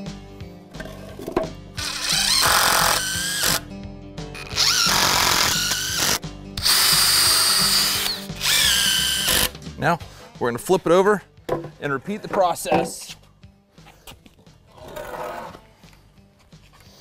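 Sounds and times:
drill driving screws into wood: 0:01.8 - 0:03.6, 0:04.3 - 0:09.5.

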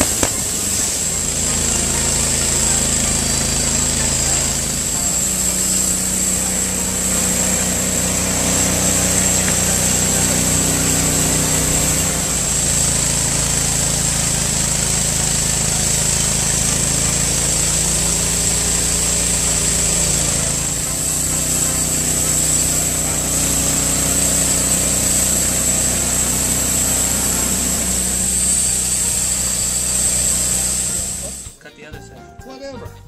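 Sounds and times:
band sawmill cutting log: 0:00.0 - 0:31.6.

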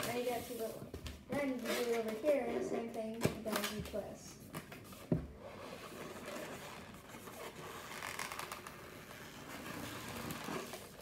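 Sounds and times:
balloon rubbing scratchily: 0:05.4 - 0:11.0.

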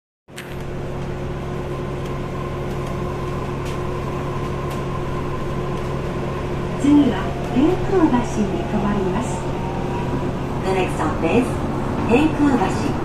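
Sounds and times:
electrical hum: 0:00.4 - 0:13.0.

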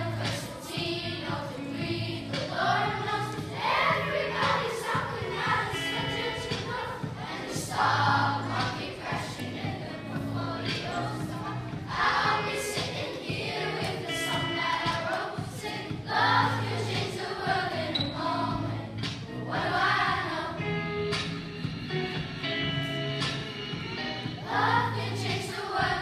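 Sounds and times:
children's choir singing: 0:00.0 - 0:20.8, 0:23.3 - 0:26.0
musical accompaniment: 0:00.0 - 0:26.0.

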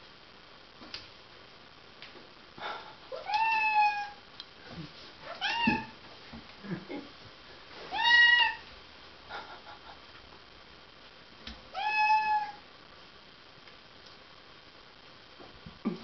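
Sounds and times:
cat meowing: 0:03.2 - 0:04.2, 0:05.2 - 0:06.0, 0:07.9 - 0:08.7, 0:11.7 - 0:12.6.

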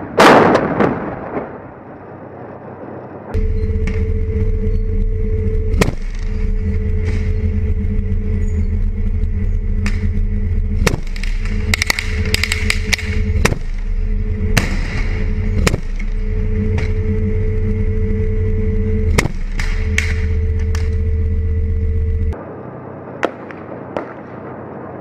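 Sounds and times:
heavy vehicle engine running: 0:03.2 - 0:23.8
heavy gun blast: 0:10.8 - 0:17.0.

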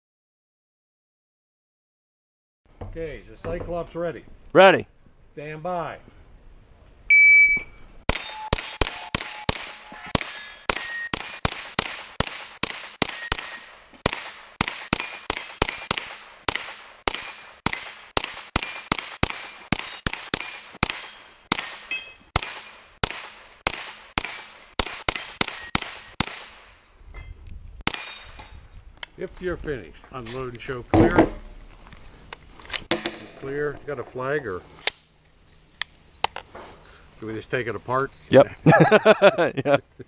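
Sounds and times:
steel targets ringing: 0:08.1 - 0:11.2, 0:15.0 - 0:15.9, 0:17.1 - 0:22.9
suppressed gunshots: 0:08.1 - 0:26.7, 0:27.8 - 0:28.4.

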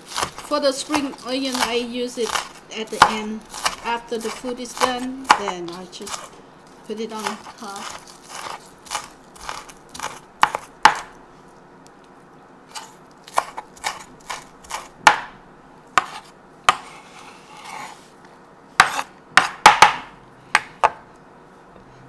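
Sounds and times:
knife chopping on wooden board: 0:00.1 - 0:06.3, 0:07.2 - 0:11.2, 0:12.7 - 0:15.3, 0:16.0 - 0:17.0, 0:18.8 - 0:21.0.

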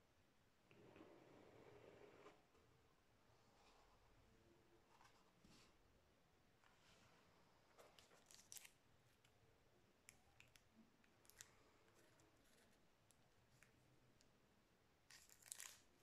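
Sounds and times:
plastic card sleeve crinkling: 0:08.1 - 0:08.8, 0:15.1 - 0:16.0.

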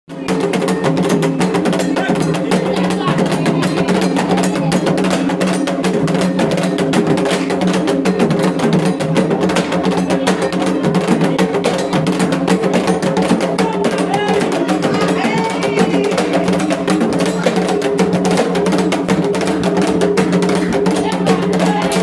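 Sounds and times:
fast drumming: 0:00.1 - 0:22.0
voices singing a chant: 0:13.2 - 0:17.6, 0:20.8 - 0:22.0.

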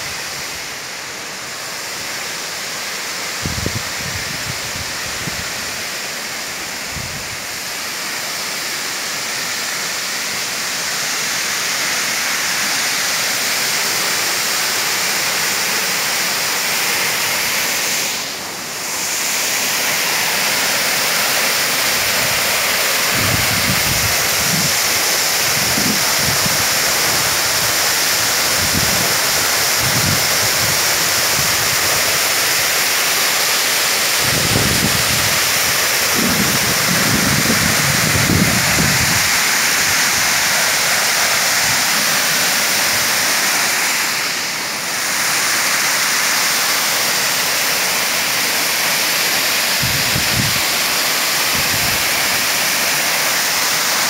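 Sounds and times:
waterfall pouring onto rock: 0:18.8 - 0:54.0
wind buffeting microphone: 0:23.1 - 0:24.8, 0:34.2 - 0:39.4.

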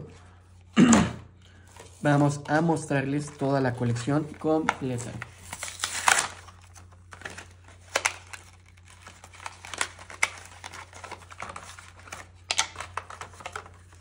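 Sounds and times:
plastic packaging crinkling: 0:01.5 - 0:14.0.

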